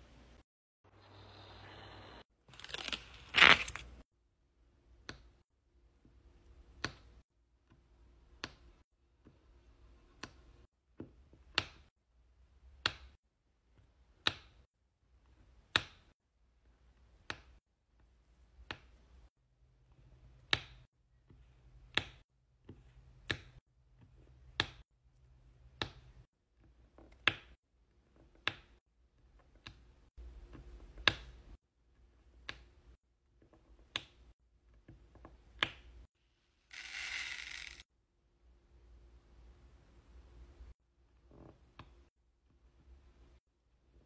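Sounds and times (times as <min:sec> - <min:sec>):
small drills poured into plastic tray: 0:36.7 - 0:37.8.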